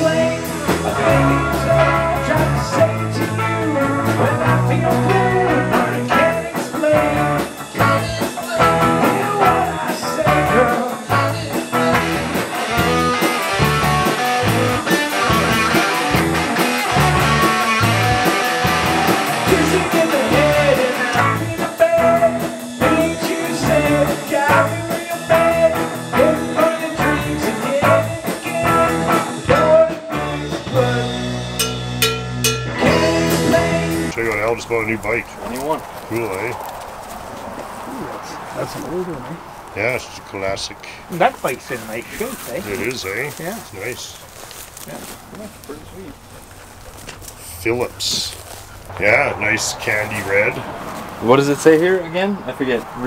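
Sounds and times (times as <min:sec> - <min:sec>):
man singing into a microphone: 0:00.0 - 0:12.3, 0:19.3 - 0:31.5, 0:32.8 - 0:34.2
drums with steady beat: 0:00.0 - 0:34.1
electric guitars: 0:00.0 - 0:36.8.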